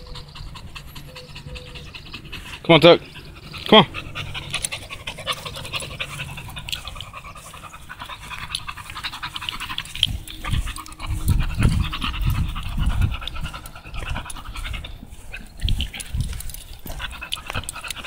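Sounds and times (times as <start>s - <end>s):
dog panting: 0.0s - 18.0s
low rumbling thumps: 10.0s - 17.2s.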